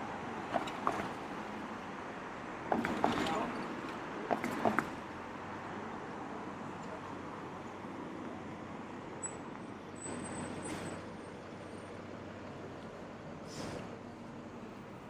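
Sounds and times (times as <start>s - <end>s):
city traffic hum: 0.0s - 15.0s
short hiss: 13.4s - 13.9s.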